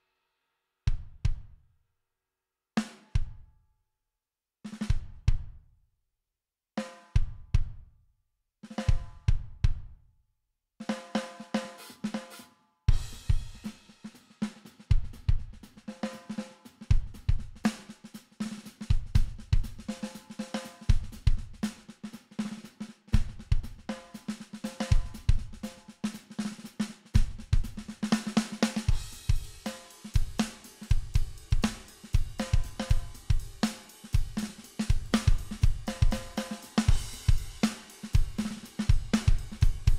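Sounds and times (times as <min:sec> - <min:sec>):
distorted rock drum groove: 0:10.9 - 0:39.9.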